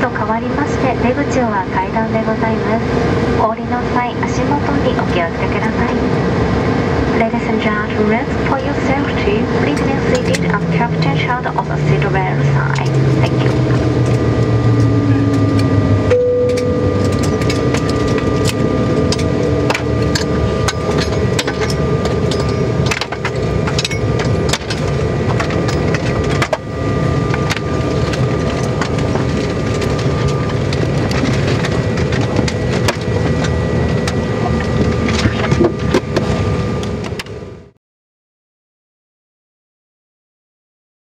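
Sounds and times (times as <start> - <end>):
aircraft cabin hum: 0.0 - 37.6
engine whining tones: 0.0 - 37.7
clicks and knocks in cabin: 16.4 - 26.6.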